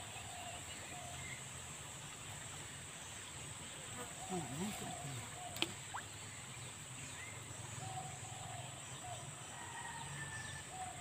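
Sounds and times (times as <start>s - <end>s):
insects droning: 0.0s - 11.0s
birds calling: 3.9s - 11.0s.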